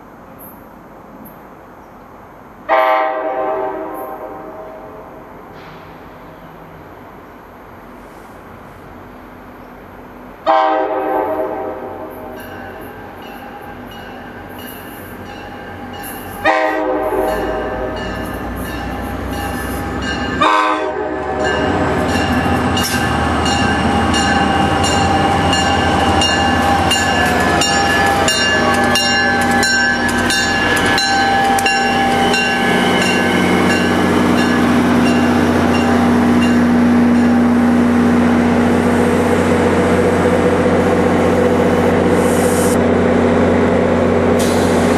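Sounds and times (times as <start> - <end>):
train horn blasts: 2.7 - 5.3, 10.4 - 13.1, 16.1 - 37.4
train wheels clicking over rail joints: 21.4 - 37.5.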